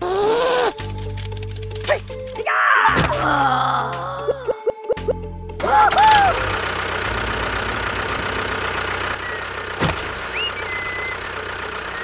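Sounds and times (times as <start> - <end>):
small motor running: 9.2 - 12.0.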